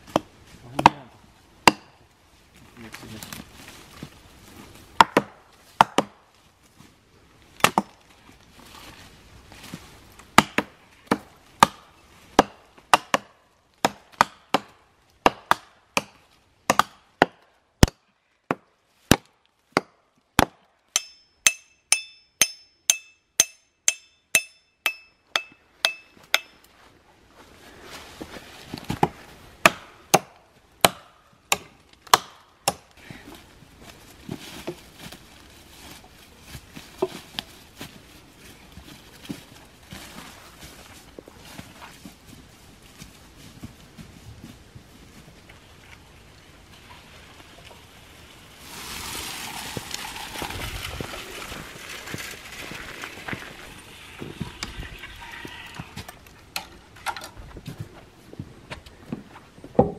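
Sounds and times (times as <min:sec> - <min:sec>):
axes chopping into a log: 0:00.1 - 0:01.0, 0:01.6 - 0:02.0, 0:05.0 - 0:06.2, 0:07.6 - 0:08.0, 0:10.3 - 0:21.6, 0:28.8 - 0:32.9
rustling dry leaves: 0:02.2 - 0:05.7, 0:06.3 - 0:12.3, 0:33.0 - 0:56.9.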